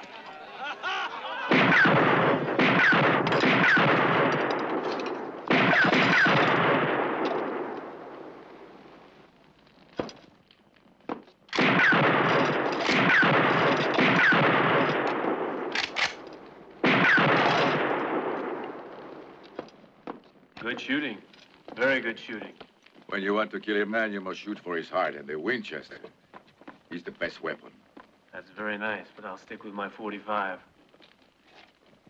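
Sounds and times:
rifle shots echoing: 1.5 - 8.8, 11.5 - 19.5.

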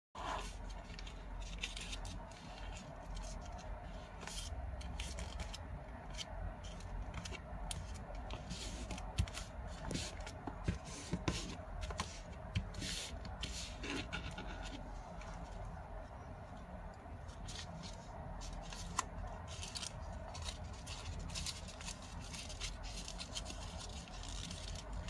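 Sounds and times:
paper rustling while folded: 0.2 - 15.8, 17.2 - 25.0
paper crackling: 17.3 - 25.0.

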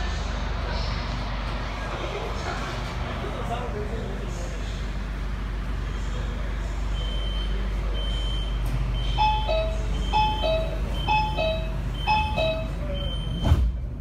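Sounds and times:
high repeating beep: 8.0 - 13.4
two-note door chime: 9.2 - 12.8.

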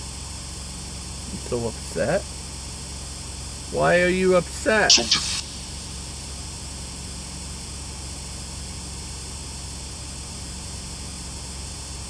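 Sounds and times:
static hiss: 0.0 - 8.9
low steady hum: 3.5 - 6.4.

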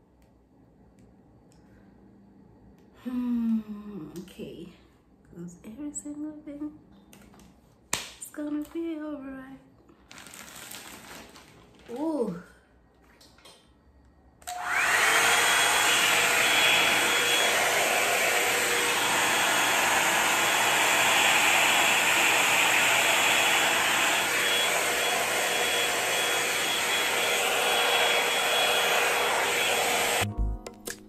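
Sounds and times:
hair dryer running: 14.4 - 30.3.

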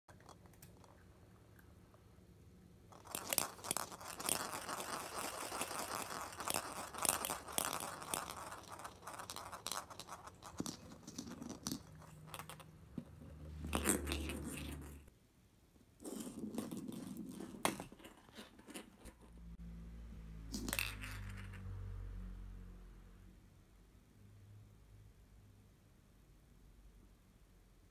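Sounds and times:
steel ball rattling in plastic capsule: 2.9 - 15.1.

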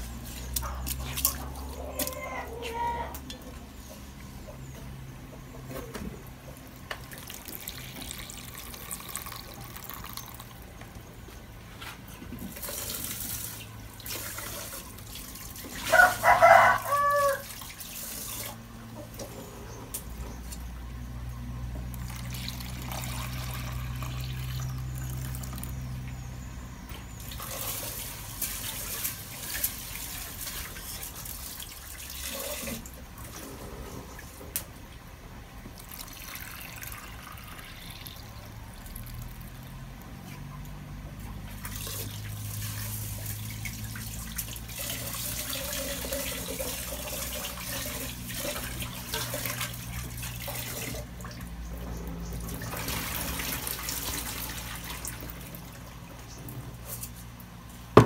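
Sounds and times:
water pouring into a plastic basin: 6.6 - 11.0, 12.4 - 18.7, 21.9 - 26.0, 27.1 - 34.4, 35.7 - 40.1, 41.2 - 51.6, 52.3 - 57.1.

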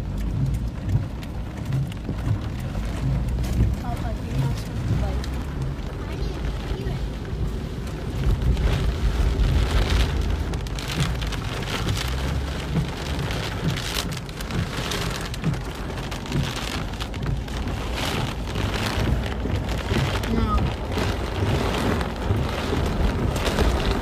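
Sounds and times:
heavy rain on car roof: 0.0 - 24.0
low car rumble: 0.0 - 24.0.

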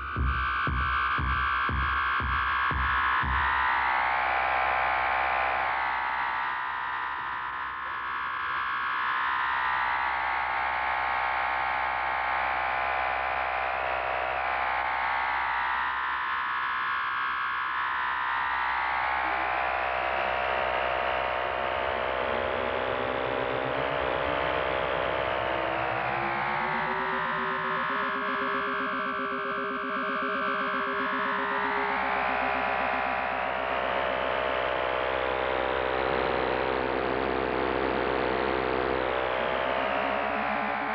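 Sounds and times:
sweeping buzzing drone: 18.2 - 40.9.

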